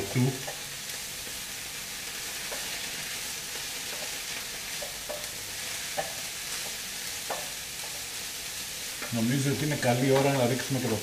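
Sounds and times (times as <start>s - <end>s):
vegetables sizzling in a wok: 0.0s - 11.0s
spatula knocking against pan: 4.8s - 5.3s, 5.9s - 7.5s.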